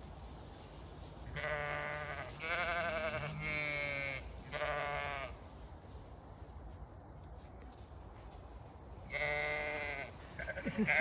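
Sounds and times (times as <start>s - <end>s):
deeper sheep bleat: 1.3s - 5.4s, 9.1s - 11.0s
sheep bleating: 1.3s - 5.4s, 9.1s - 11.0s.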